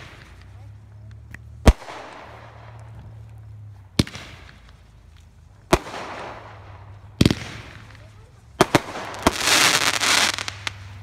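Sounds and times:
fireworks bangs: 0.0 - 0.8, 1.6 - 11.0
fireworks hiss: 4.0 - 11.0.

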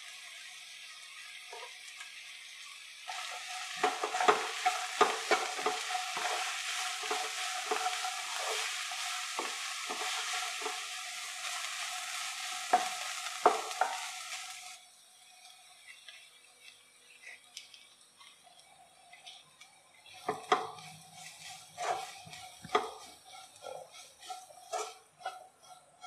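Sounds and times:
vegetables sizzling in pan: 0.0 - 26.0
wooden spatula knocking pan: 3.1 - 11.0, 12.6 - 14.2, 20.2 - 20.8, 21.8 - 25.8.

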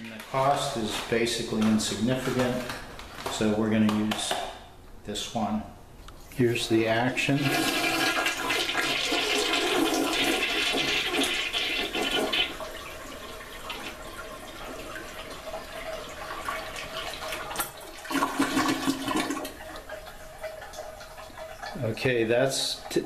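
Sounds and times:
toilet flushing: 7.0 - 23.0.

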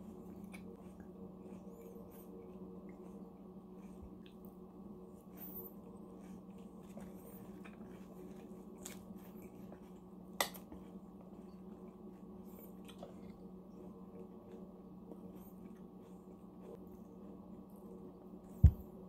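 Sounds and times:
chewing and mouth clicks: 0.0 - 4.6, 5.2 - 18.0
steady low hum: 0.0 - 19.0.

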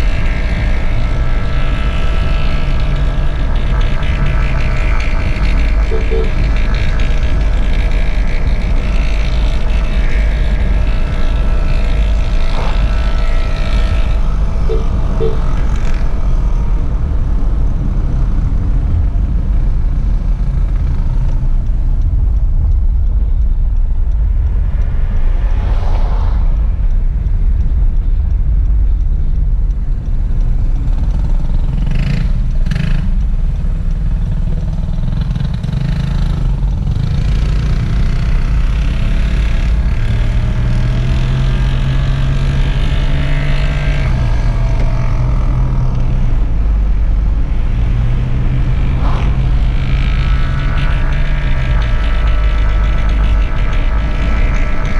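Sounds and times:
car rumbling along road: 0.0 - 54.9
engine drone: 0.0 - 54.9
brief whooshes: 48.9 - 50.1.

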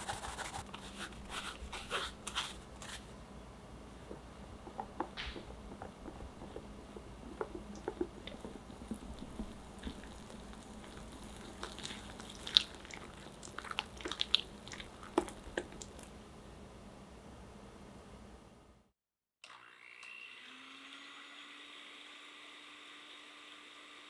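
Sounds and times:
batter squishing and scraping: 0.0 - 3.2, 5.2 - 16.1.

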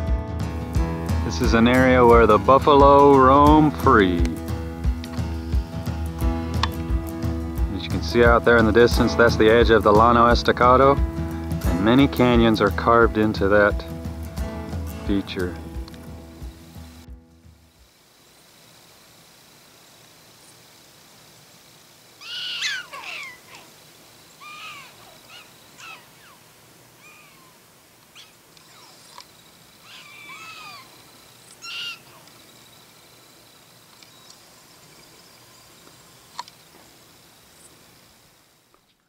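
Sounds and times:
prairie dogs chirping barks: 22.2 - 33.2.

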